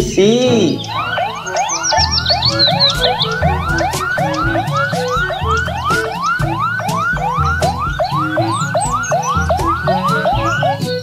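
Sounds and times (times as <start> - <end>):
police siren yelping: 0.8 - 11.0.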